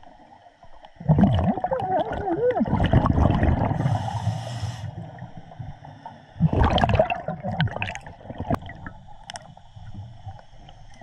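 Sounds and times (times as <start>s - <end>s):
exhaled bubbles gurgling: 0.9s - 11.0s
regulator inhalation hiss: 3.7s - 5.1s.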